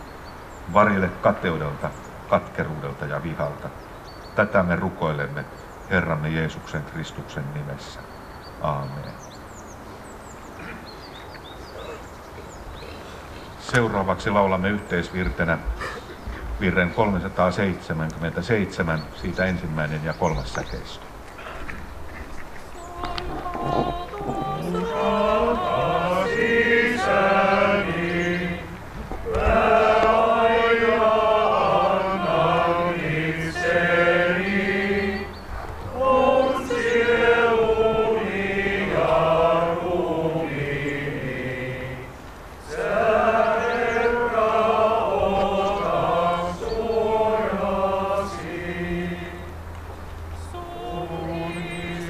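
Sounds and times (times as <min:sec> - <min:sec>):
congregation singing a hymn: 0:22.7 - 0:52.0.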